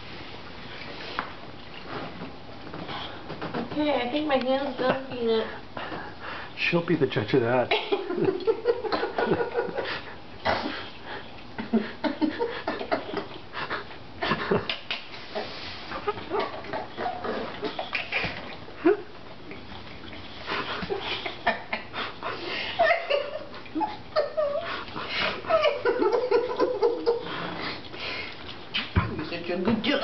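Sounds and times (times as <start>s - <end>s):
dog licking and slurping: 26.4s - 29.9s.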